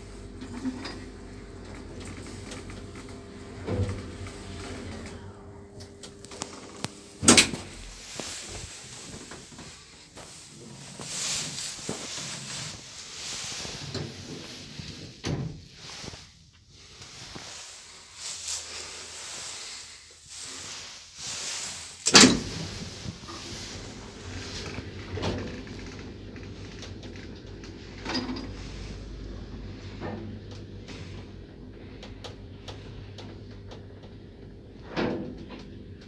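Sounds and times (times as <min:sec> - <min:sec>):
elevator running hum: 0:00.0 - 0:15.2, 0:20.2 - 0:36.0
elevator door banging shut: 0:07.2 - 0:07.8, 0:22.1 - 0:22.7.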